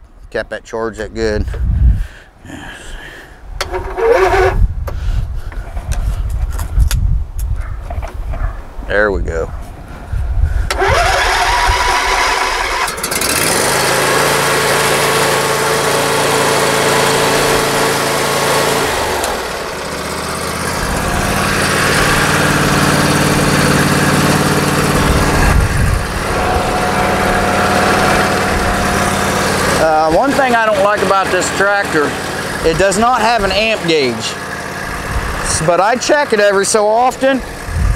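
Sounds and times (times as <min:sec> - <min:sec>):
lawn tractor engine running: 0:03.6 - 0:04.6, 0:10.7 - 0:37.9.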